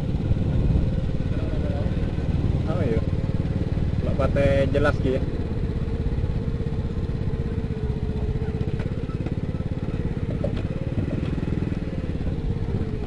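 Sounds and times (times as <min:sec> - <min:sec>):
small motorcycle engine puttering: 0:00.0 - 0:13.0.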